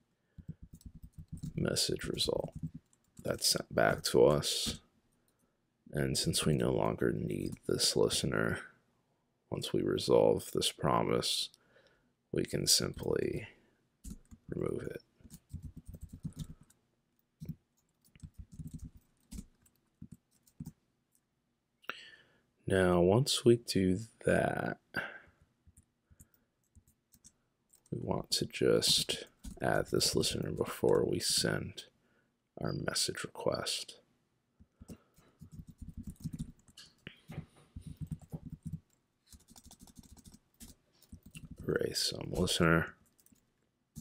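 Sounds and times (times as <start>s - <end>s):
computer keyboard typing: 0.4s - 1.6s, 2.3s - 3.3s, 14.0s - 14.4s, 15.3s - 16.8s, 17.4s - 20.7s, 25.7s - 27.9s, 34.9s - 37.0s, 37.8s - 41.6s, 42.4s - 43.4s.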